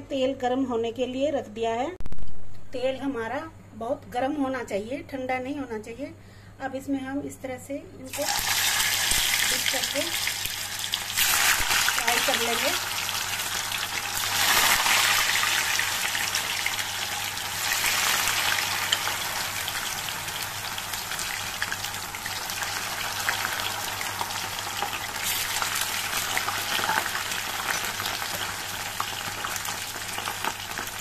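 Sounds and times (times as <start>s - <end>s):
food deep-frying in hot oil: 8.1s - 31.0s.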